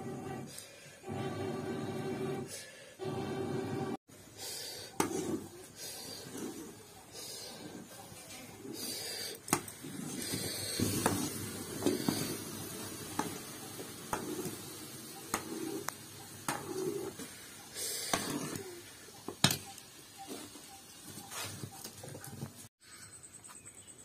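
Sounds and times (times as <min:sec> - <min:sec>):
cooking paste hissing: 0:04.1 - 0:21.8
metal spatula scraping pan: 0:04.9 - 0:08.9, 0:15.3 - 0:18.8.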